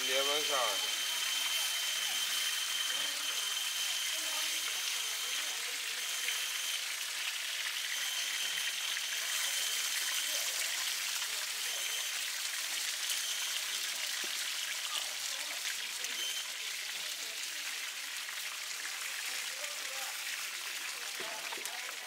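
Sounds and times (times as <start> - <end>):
oil sizzling and crackling in a pan: 0.0 - 22.0.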